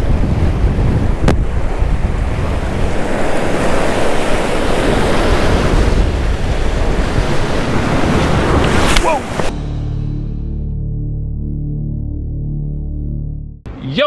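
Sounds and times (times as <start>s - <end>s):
wind buffeting microphone: 0.0s - 9.5s
surf breaking against rocks: 1.1s - 9.5s.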